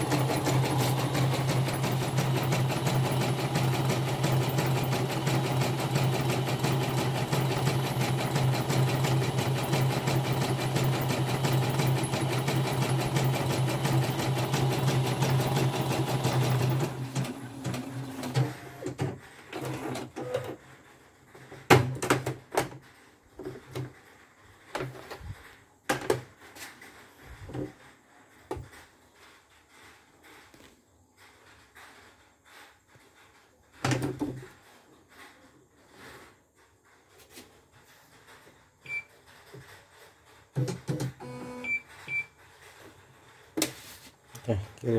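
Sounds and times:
embroidery machine stitching: 0.0 - 20.6.

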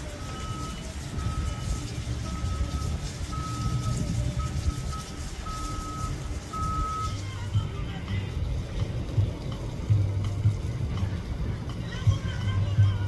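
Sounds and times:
low rumble: 0.0 - 13.0
electronic beeper: 0.2 - 7.2.

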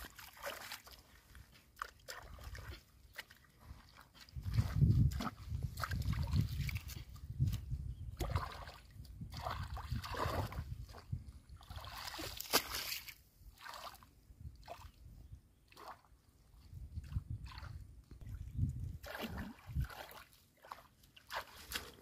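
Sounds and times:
hands splashing in muddy water: 0.0 - 14.0, 19.0 - 22.0.

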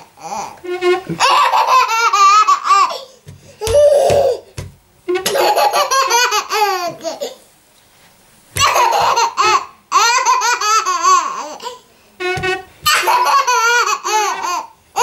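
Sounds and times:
baby laughing: 1.2 - 4.5, 5.2 - 7.4, 8.6 - 11.8, 12.8 - 15.0.

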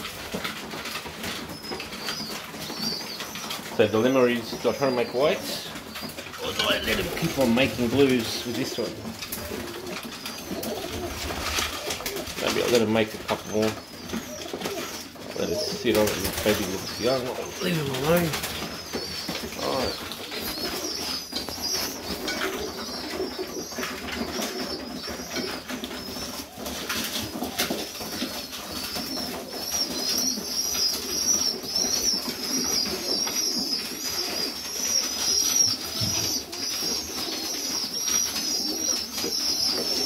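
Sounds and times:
pigeons cooing: 0.0 - 40.0.

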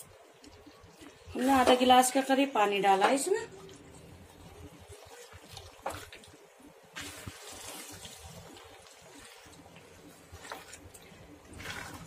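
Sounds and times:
spatula scraping in wet gravy: 7.0 - 12.0.

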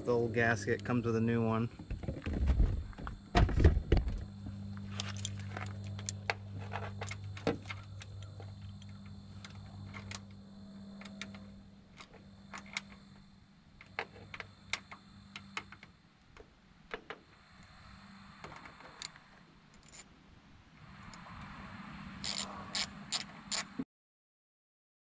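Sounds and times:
steady low hum: 0.0 - 23.8.

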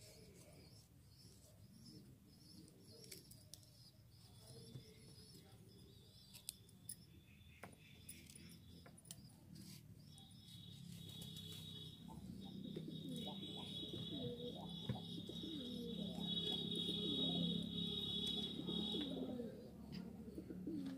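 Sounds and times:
doves cooing: 12.1 - 20.9.

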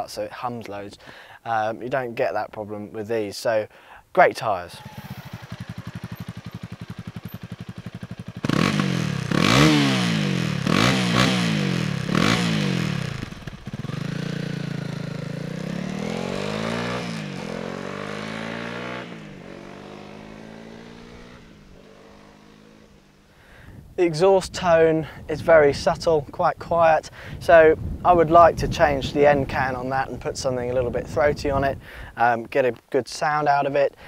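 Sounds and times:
motorcycle pulling away through gears: 4.8 - 23.3
motorcycle engine revving: 4.8 - 23.4
motorcycle engine idling: 4.8 - 23.5.

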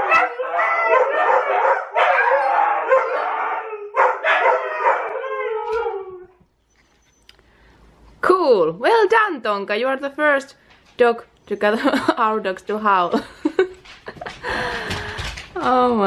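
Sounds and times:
dogs yipping: 0.0 - 6.0
huskies howling: 0.0 - 6.4.

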